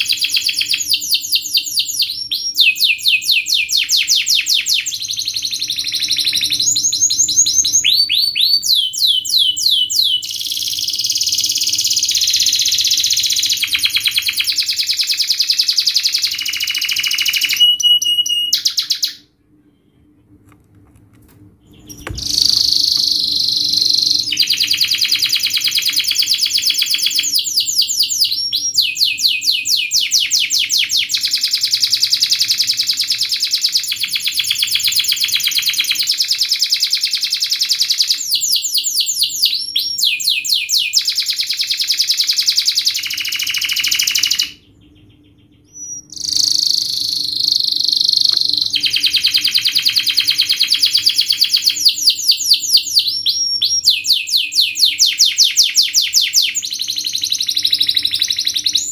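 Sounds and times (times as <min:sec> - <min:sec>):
canary trilling song: 0:00.0 - 0:20.2, 0:21.6 - 0:58.9.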